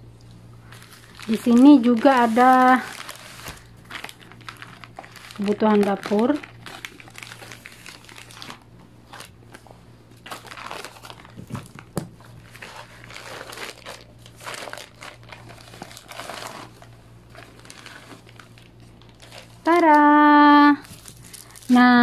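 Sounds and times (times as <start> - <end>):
plastic bag crinkling: 0.6 - 22.0
scissors cutting plastic: 1.2 - 9.4.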